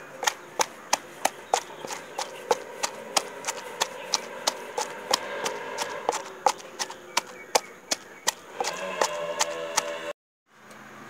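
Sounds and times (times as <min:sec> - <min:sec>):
pestle pounding in mortar: 0:00.0 - 0:10.1.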